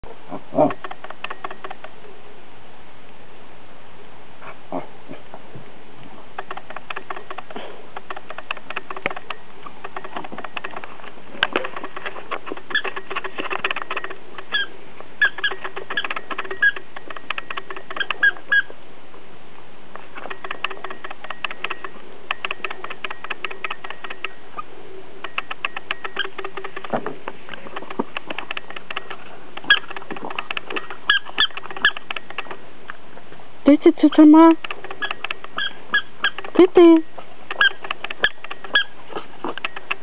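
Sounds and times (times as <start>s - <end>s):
dogs snuffling: 4.4s - 18.8s, 34.1s - 40.0s
dog claws clicking: 6.4s - 18.4s, 20.2s - 24.4s, 25.2s - 32.6s, 34.6s - 36.7s
high squeaks: 11.6s - 18.7s, 25.3s - 27.0s, 27.8s - 32.6s, 34.1s - 40.0s.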